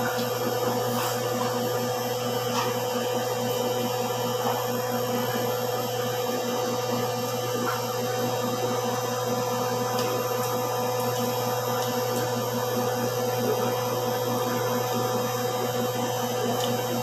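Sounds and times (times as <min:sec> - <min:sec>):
electric motor hum: 0:00.0 - 0:17.0.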